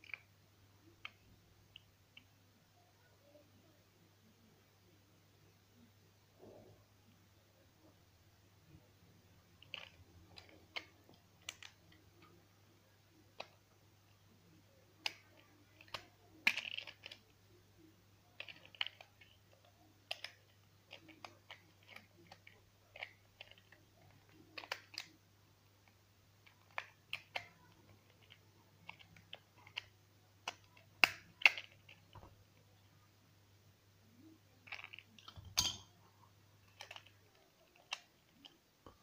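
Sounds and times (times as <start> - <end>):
plastic clicks and rattles: 9.6 - 12.4, 15.0 - 17.3, 18.4 - 25.2, 25.8 - 32.3, 34.6 - 35.9, 36.6 - 39.0.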